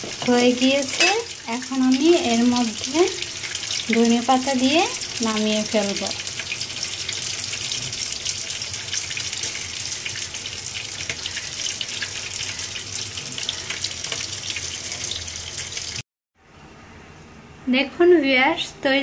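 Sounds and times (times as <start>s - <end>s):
food sizzling in a pot: 0.0s - 16.0s.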